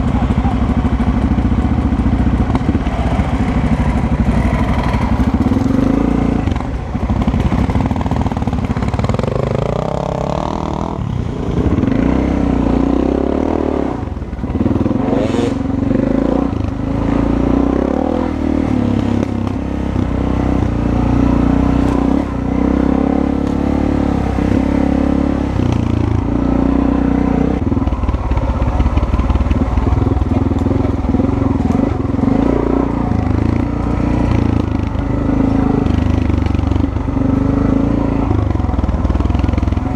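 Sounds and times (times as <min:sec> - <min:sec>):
clatter over rough ground: 0:00.0 - 0:12.0, 0:27.6 - 0:39.9
dirt bike engine: 0:00.0 - 0:39.9.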